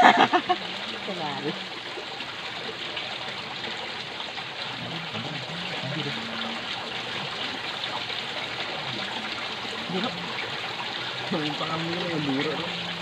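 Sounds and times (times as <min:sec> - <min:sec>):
stream running over rocks: 0:00.0 - 0:13.0.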